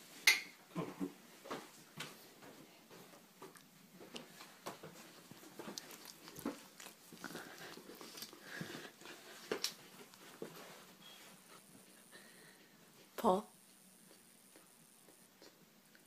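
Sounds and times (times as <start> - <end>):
dog mouth noises: 5.3 - 10.2.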